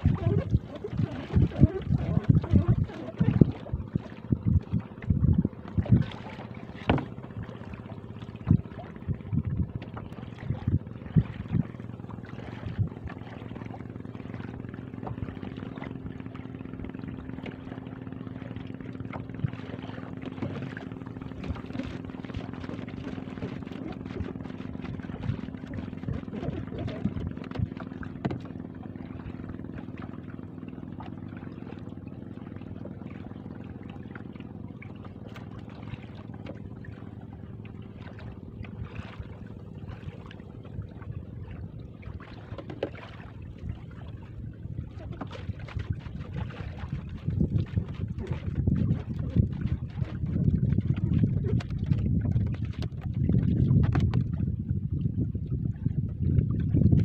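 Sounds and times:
steady low hum: 0:00.0 - 0:57.0
jug knocking against boat hull: 0:06.6 - 0:07.5, 0:20.1 - 0:28.7, 0:45.1 - 0:54.4.

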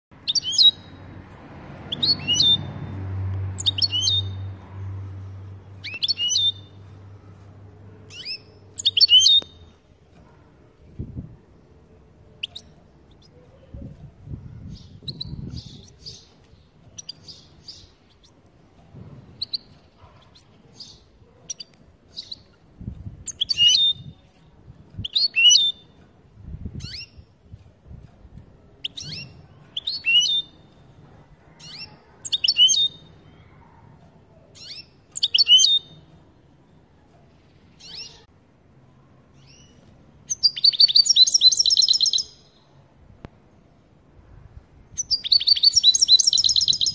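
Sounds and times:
goldfinch chirping calls: 0:00.2 - 0:01.0, 0:03.6 - 0:04.5, 0:05.8 - 0:06.8, 0:08.1 - 0:09.6, 0:19.4 - 0:22.6, 0:23.2 - 0:24.2, 0:25.0 - 0:26.0, 0:34.6 - 0:36.0, 0:40.3 - 0:42.6, 0:45.0 - 0:46.9.

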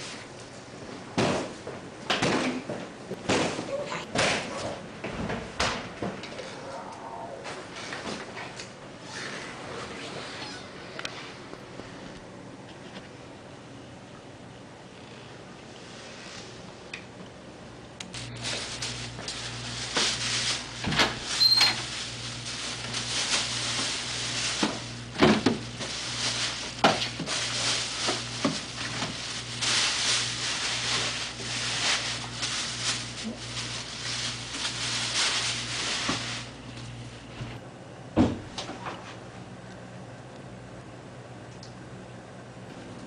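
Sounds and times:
steady low hum: 0:00.0 - 0:43.0
paper bag crackling: 0:18.1 - 0:36.6.

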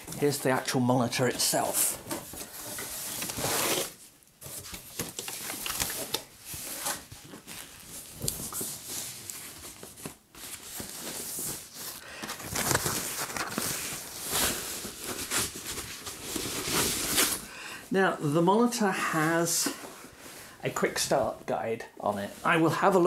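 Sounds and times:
packaging rustling and crinkling: 0:01.3 - 0:17.5.

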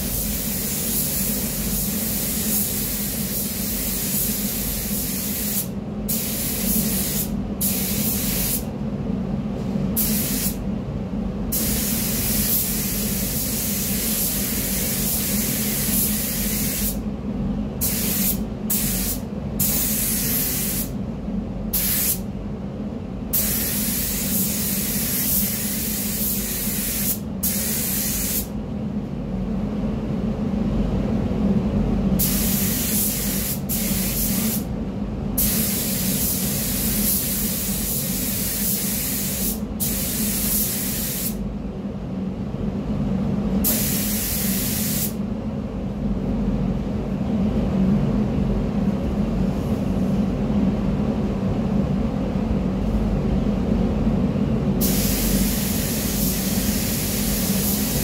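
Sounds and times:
steady low hum: 0:00.0 - 0:58.0
paint spray gun hissing: 0:00.1 - 0:08.6, 0:11.5 - 0:17.0, 0:21.8 - 0:22.2, 0:35.4 - 0:41.4, 0:43.7 - 0:45.2, 0:54.8 - 0:58.0.

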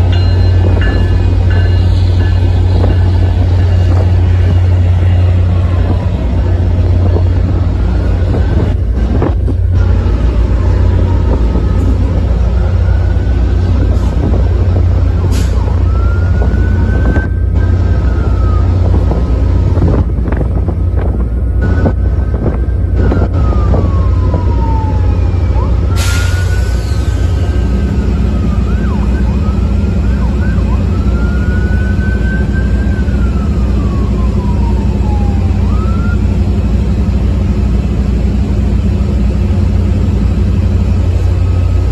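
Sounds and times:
diesel locomotive drone: 0:00.0 - 0:41.9
siren wailing: 0:00.1 - 0:20.5, 0:21.6 - 0:36.6.

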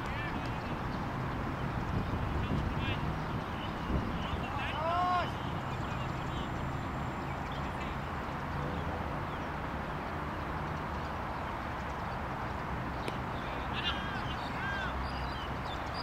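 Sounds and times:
wind on microphone: 0:00.0 - 0:04.7
distant traffic: 0:00.0 - 0:16.0
players shouting: 0:04.2 - 0:05.5, 0:13.6 - 0:15.0.

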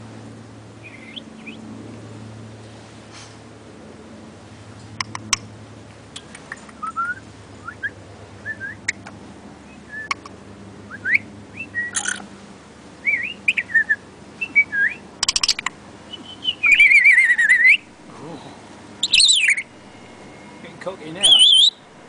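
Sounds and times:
bird whistled chirps: 0:00.8 - 0:01.6, 0:06.8 - 0:09.0, 0:09.7 - 0:10.2, 0:10.9 - 0:12.2, 0:13.0 - 0:17.8, 0:19.0 - 0:19.7, 0:21.2 - 0:21.8
sharp clicks: 0:05.0 - 0:05.5, 0:06.1 - 0:07.0.

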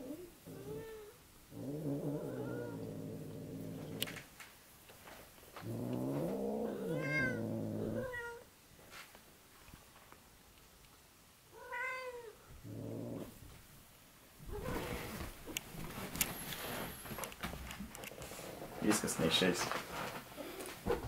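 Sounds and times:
cat growling yowl: 0:00.0 - 0:04.1, 0:05.6 - 0:08.5
rustle: 0:00.1 - 0:13.8
cat meowing: 0:06.8 - 0:08.4, 0:11.6 - 0:12.4.

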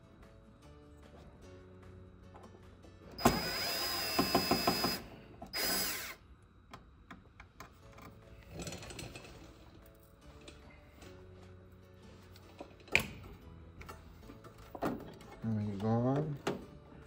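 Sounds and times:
cordless drill running: 0:03.2 - 0:06.2.

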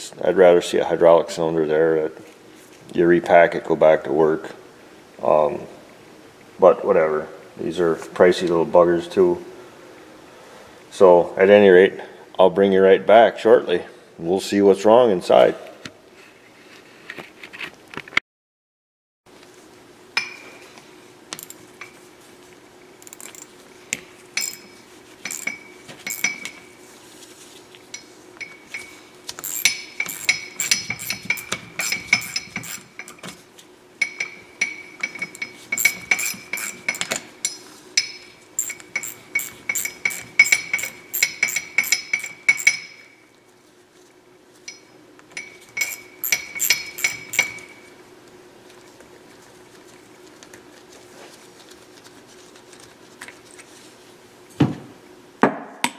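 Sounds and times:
steady low hum: 0:19.4 - 0:54.5
ratchet clicking: 0:24.4 - 0:24.6, 0:25.3 - 0:26.4, 0:29.4 - 0:33.2, 0:35.1 - 0:37.2, 0:38.6 - 0:42.9, 0:45.8 - 0:47.8.

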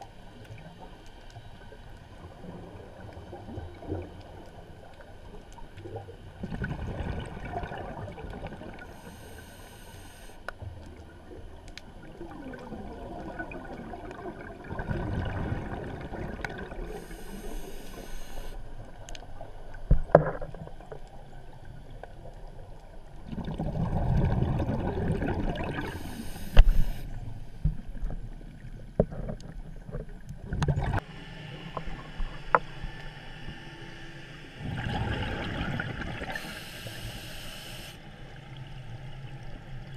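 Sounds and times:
rush of bubbles: 0:06.4 - 0:08.9, 0:12.2 - 0:17.0, 0:23.2 - 0:26.2, 0:34.6 - 0:36.6
diver breathing through regulator: 0:08.9 - 0:10.4, 0:16.8 - 0:18.6, 0:25.8 - 0:27.1, 0:36.2 - 0:38.0.

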